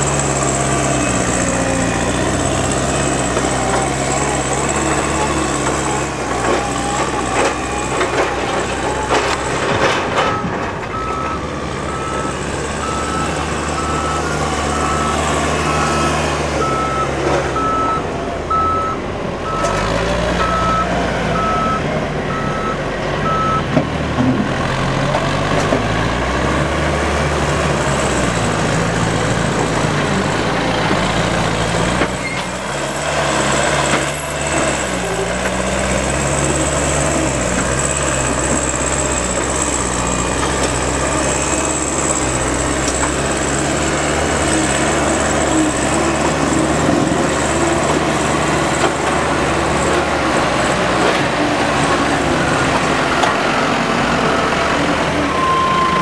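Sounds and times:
diesel engine revving: 0.0s - 56.0s
reversing alarm beeps: 10.2s - 19.8s, 20.4s - 23.7s, 55.3s - 56.0s.

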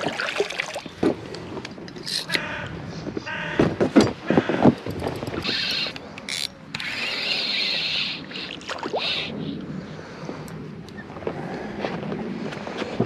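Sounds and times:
spinning reel cranking: 4.8s - 8.2s.

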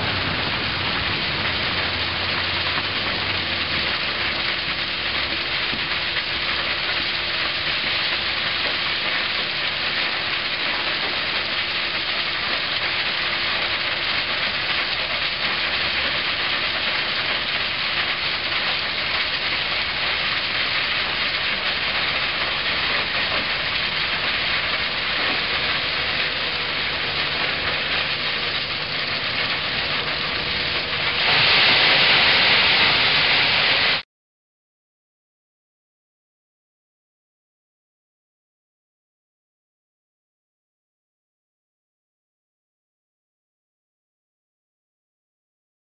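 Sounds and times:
gravel pouring through screen: 0.0s - 34.0s
loader tipping gravel into hopper: 0.0s - 34.0s.

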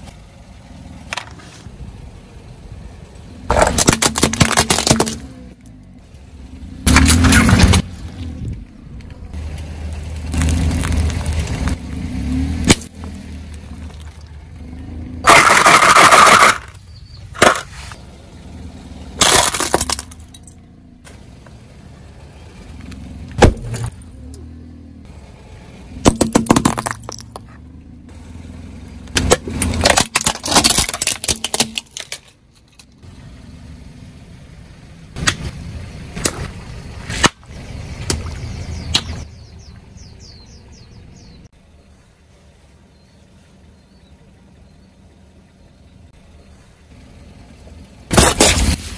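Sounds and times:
tyre and engine rumble: 0.0s - 48.9s
objects bursting under a tyre: 3.5s - 5.4s, 6.8s - 8.1s, 10.0s - 11.8s, 15.2s - 18.0s, 19.2s - 20.4s, 26.0s - 27.5s, 29.1s - 32.4s, 48.1s - 48.9s.

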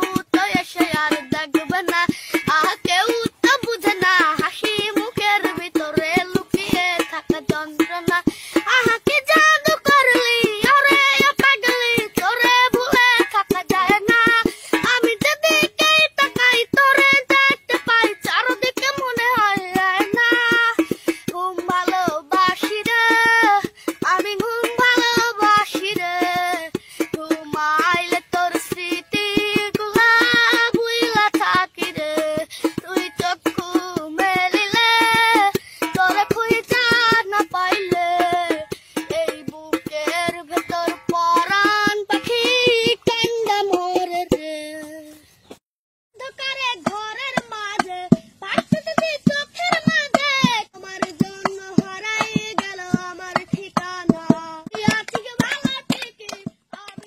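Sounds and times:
rhythmic hand-clapping: 51.0s - 57.0s.

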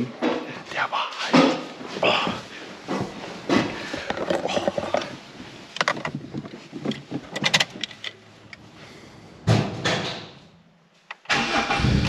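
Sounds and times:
keys clicking and knocking: 5.8s - 8.6s.

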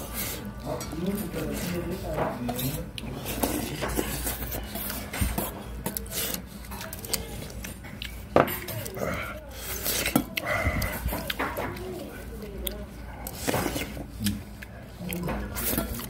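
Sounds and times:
cutlery clinking on dishes: 0.2s - 8.9s, 9.8s - 11.9s, 15.2s - 16.0s.

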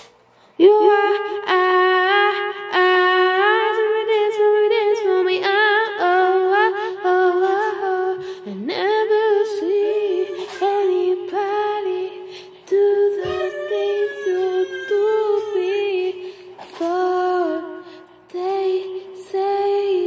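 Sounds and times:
girl humming: 9.8s - 11.4s, 12.8s - 17.6s.

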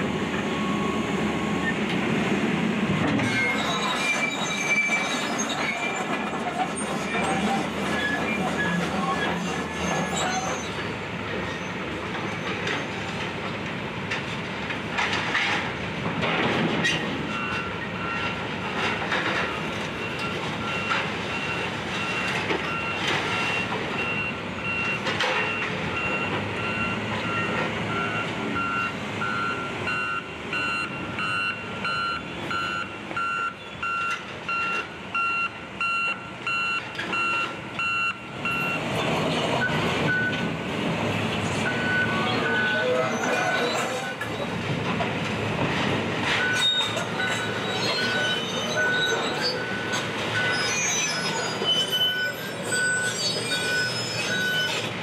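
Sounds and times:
heavy demolition machinery running: 0.0s - 30.0s
vehicle backup alarm beeping: 19.4s - 38.8s, 39.6s - 40.4s, 41.6s - 43.0s, 46.4s - 50.7s, 52.1s - 54.8s.

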